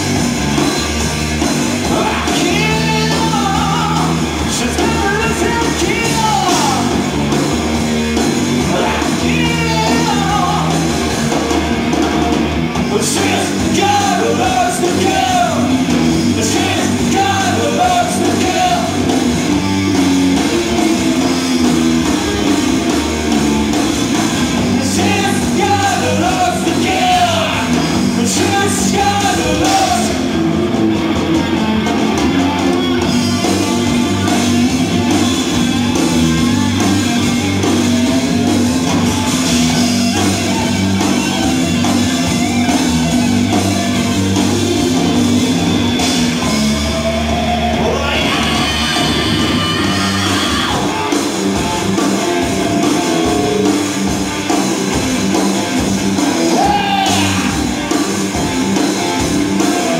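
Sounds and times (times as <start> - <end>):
bass guitar: 0.0 - 59.9
distorted electric guitars: 0.0 - 59.9
drums: 0.0 - 59.9
person singing: 8.6 - 10.8, 24.7 - 30.2, 46.8 - 51.2, 56.5 - 57.8.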